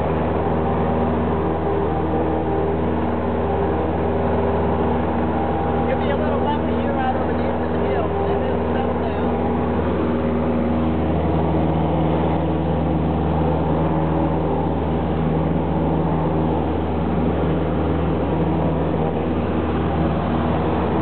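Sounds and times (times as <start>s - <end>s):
propeller plane engine droning: 0.0s - 21.0s.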